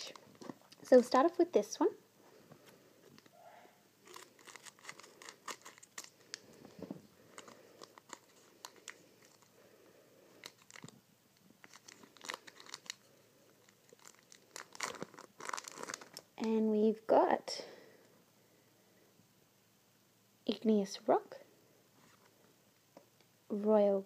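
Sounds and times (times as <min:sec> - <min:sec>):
foil wrapper crinkling: 0:00.0 - 0:01.2, 0:04.0 - 0:06.6, 0:07.2 - 0:09.5, 0:10.3 - 0:11.0, 0:11.6 - 0:16.4.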